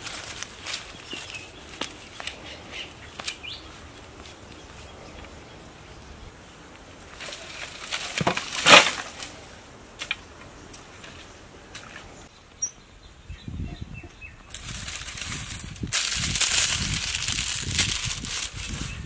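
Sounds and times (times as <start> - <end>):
dry sticks rustling: 0.0 - 12.3, 14.5 - 19.0
sticks dropped with crackling crash: 7.1 - 9.4.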